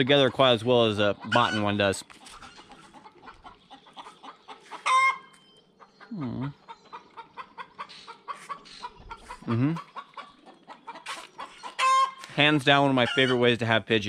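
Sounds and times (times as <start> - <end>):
chickens clucking: 0.0 - 13.8
chicken squawk: 1.2 - 5.4, 6.0 - 12.3, 13.0 - 13.4
man humming: 6.1 - 6.5, 9.4 - 9.8.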